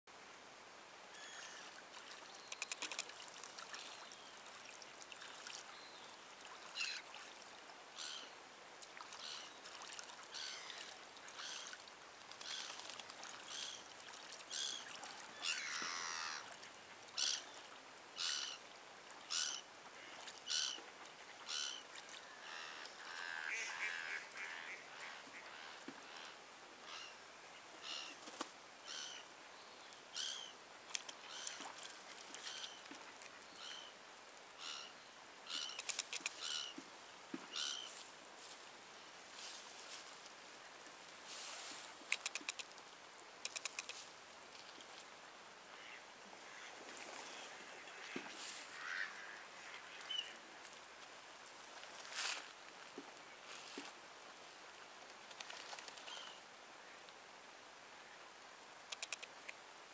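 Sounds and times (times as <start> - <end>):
honking waterbird calls: 15.4 - 16.6, 22.4 - 27.1.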